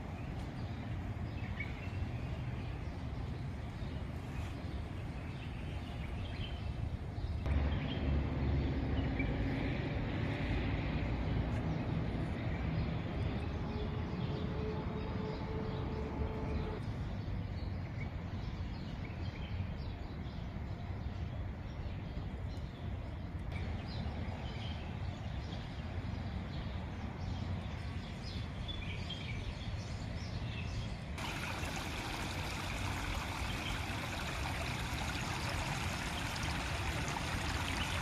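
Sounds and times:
engine-like hum of several tones: 0:07.4 - 0:17.1, 0:31.2 - 0:38.0.

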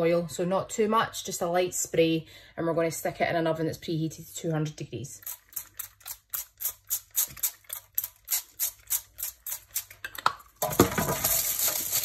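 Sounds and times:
rustling noise with clatter: 0:10.6 - 0:12.0.

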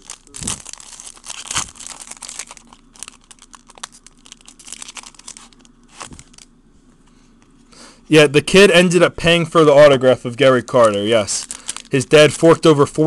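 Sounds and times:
foil wrapper tearing and crinkling: 0:00.0 - 0:06.5, 0:10.7 - 0:12.1.

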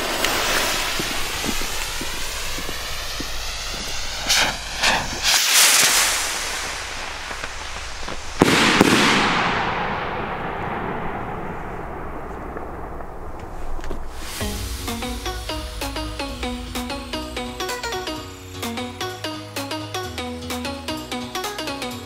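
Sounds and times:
sharp firework cracks: 0:00.0 - 0:18.8
rocket hissing: 0:00.0 - 0:19.3
loud dull bang with echo: 0:08.0 - 0:18.2.

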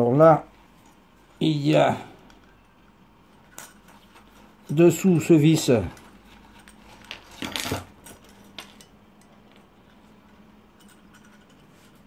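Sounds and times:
metal parts clinking: 0:03.4 - 0:12.0.

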